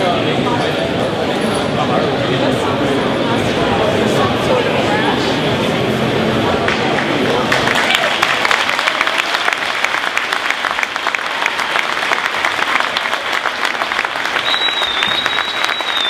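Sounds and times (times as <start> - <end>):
crowd applauding: 6.6 - 16.0.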